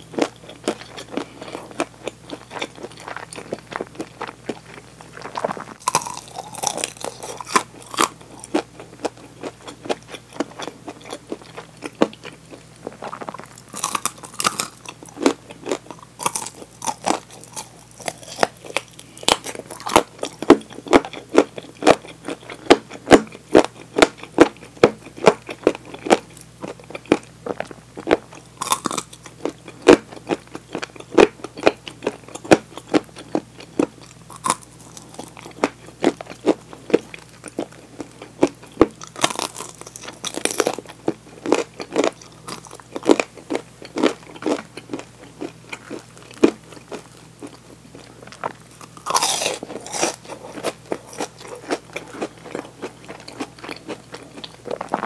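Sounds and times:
crunching fried chicken: 0.0 - 55.0.

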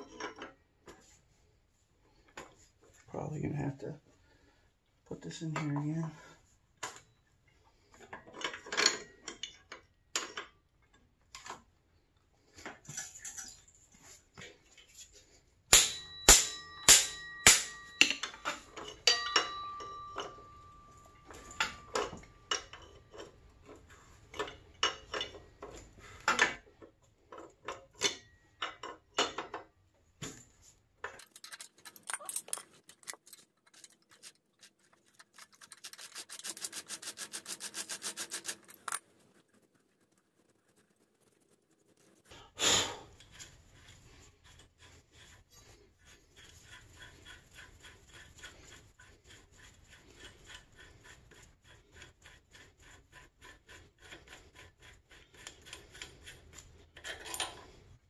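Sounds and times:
metallic tool strikes: 15.7 - 22.2
metal clanks and clicks: 15.8 - 29.7, 31.0 - 36.5, 55.3 - 57.8.

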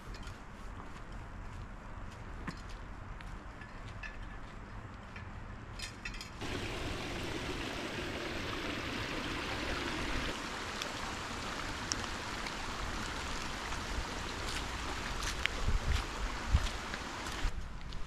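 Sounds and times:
creek running over rocks: 6.4 - 17.5.

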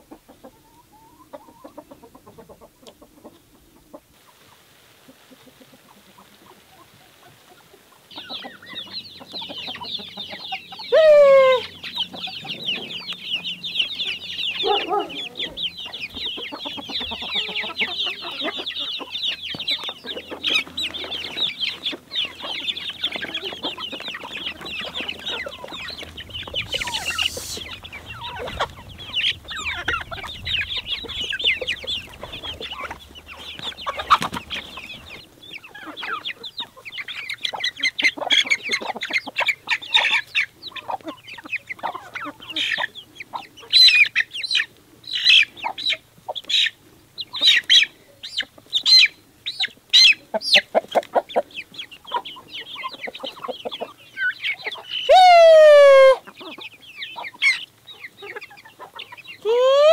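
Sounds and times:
chickens clucking: 0.0 - 59.9
chicken drawn-out falling call: 10.8 - 11.8, 22.2 - 35.2, 55.1 - 56.3, 59.4 - 59.9.

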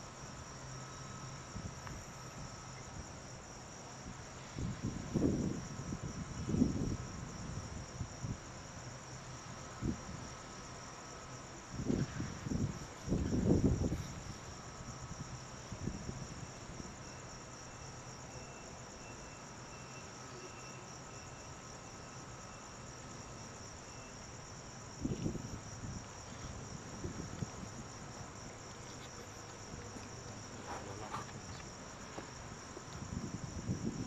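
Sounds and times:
night insects chirring: 0.0 - 34.0.

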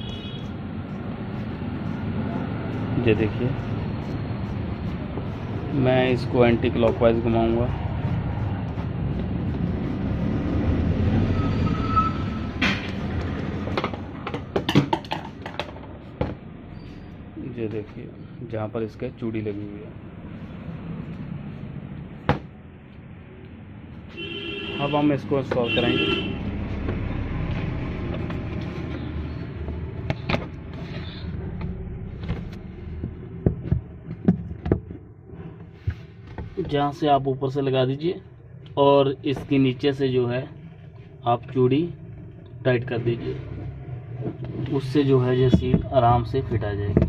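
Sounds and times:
hand rubbing rubber seal: 0.0 - 11.9
sharp clicks and knocks: 12.6 - 16.4, 31.5 - 35.1, 45.4 - 47.0.

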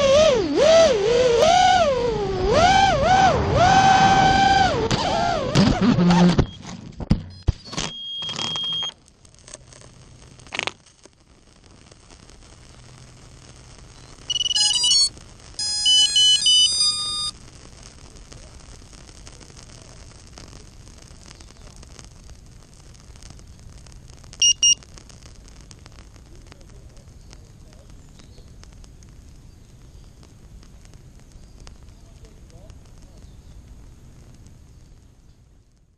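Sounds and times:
faint steady hum: 0.0 - 35.9
electronic beeping: 7.3 - 9.0, 14.3 - 17.3, 24.4 - 24.8.

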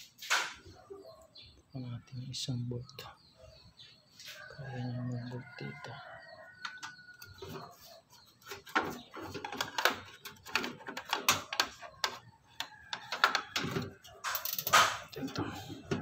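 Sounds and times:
clicks and rattles of plastic parts: 8.4 - 16.0.

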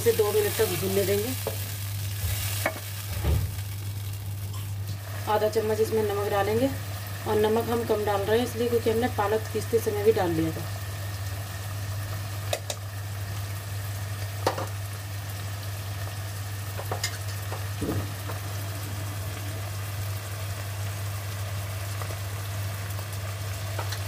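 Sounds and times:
masala sizzling in a pan: 0.0 - 24.0
steady low hum: 16.4 - 23.6.

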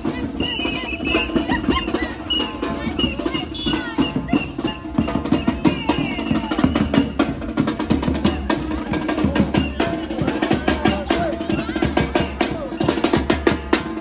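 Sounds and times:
crowd voices: 0.0 - 14.0
snare and bass drums playing: 0.0 - 14.0.

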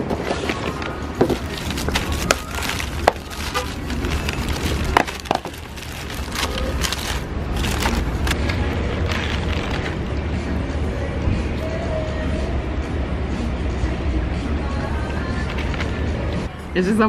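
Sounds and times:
paper wrapper crinkling: 0.2 - 10.0.

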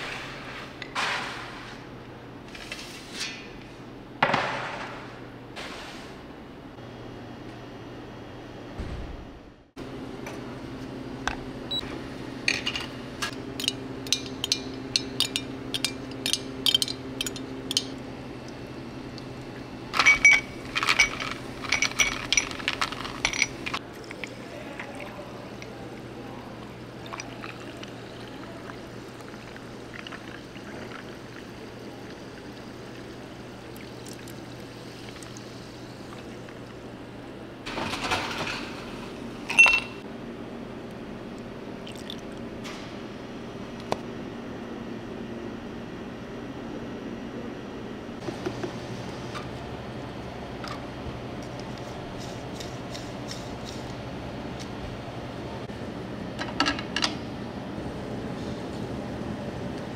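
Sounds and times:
low machine hum: 3.5 - 59.9
liquid pouring: 23.8 - 36.8, 41.8 - 42.4.

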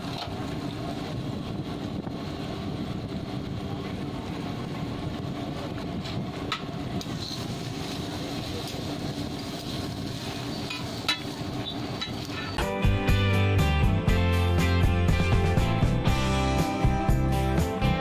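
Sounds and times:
busy food stall hum and clatter: 0.0 - 13.2
music: 12.4 - 18.0.

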